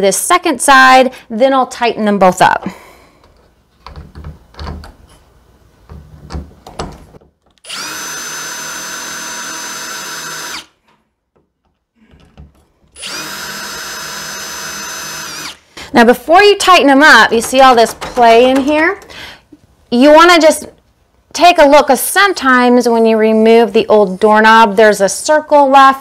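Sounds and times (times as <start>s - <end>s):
cordless drill driving bolts: 7.5s - 10.8s, 12.2s - 15.7s, 17.1s - 19.2s.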